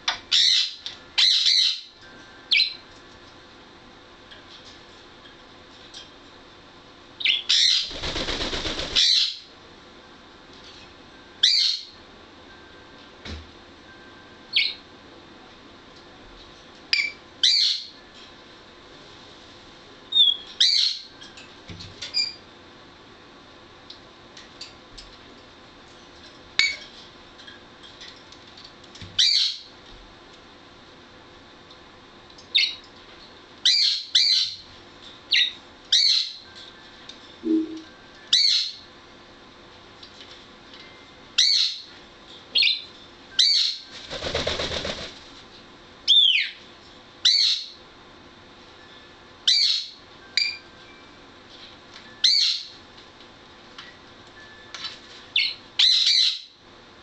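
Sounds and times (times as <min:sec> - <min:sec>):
parrot chirps and whistles: 0:00.3 - 0:01.9, 0:11.4 - 0:11.9, 0:20.1 - 0:21.1, 0:29.2 - 0:29.7, 0:38.3 - 0:38.8, 0:41.4 - 0:41.8, 0:42.5 - 0:43.9, 0:47.2 - 0:47.8, 0:49.5 - 0:50.6, 0:52.2 - 0:52.7, 0:55.4 - 0:56.6.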